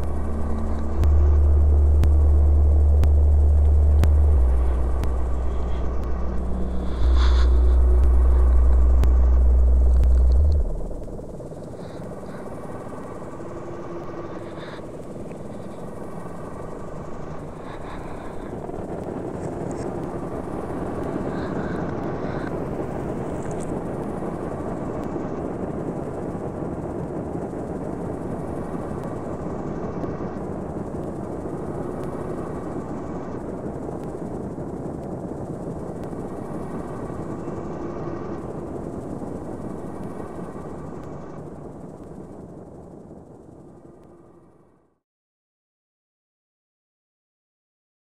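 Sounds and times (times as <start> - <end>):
faint high tones: 0.0 - 18.3
low rumbling ambient drone: 0.0 - 44.8.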